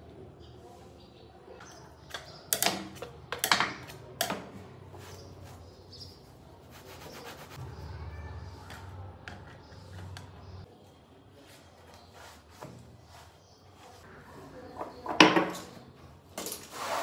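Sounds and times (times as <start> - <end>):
cloth rubbing: 6.7 - 7.6.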